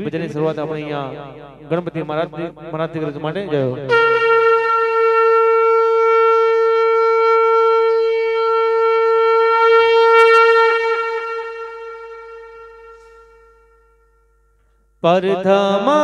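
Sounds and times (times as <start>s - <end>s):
conch shell blown: 3.8s - 15.0s.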